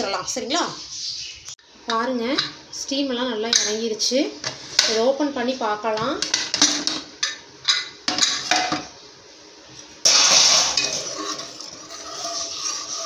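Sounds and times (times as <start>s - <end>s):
pressure cooker hiss: 10.0s - 13.0s
ladle scraping metal pot: 10.1s - 13.0s.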